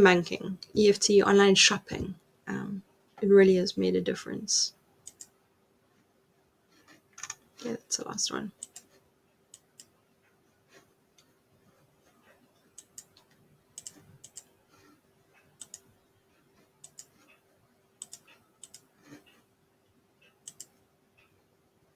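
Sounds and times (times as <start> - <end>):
computer mouse clicks: 5.0 - 5.4, 6.8 - 7.5, 8.5 - 10.0, 12.6 - 16.0, 16.6 - 17.4, 18.0 - 19.5, 20.2 - 21.3.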